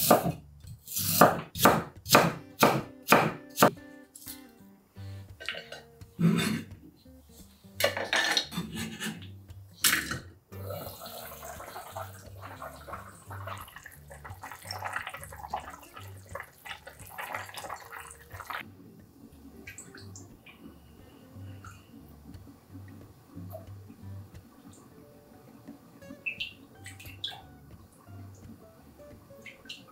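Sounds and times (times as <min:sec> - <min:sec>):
dishes clinking: 0:05.4 - 0:06.7, 0:07.8 - 0:09.2
liquid splashing: 0:10.9 - 0:18.6.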